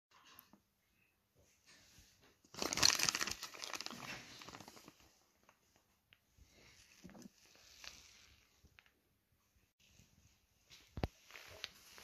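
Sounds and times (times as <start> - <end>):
plastic bag crinkling: 2.5 - 5.6.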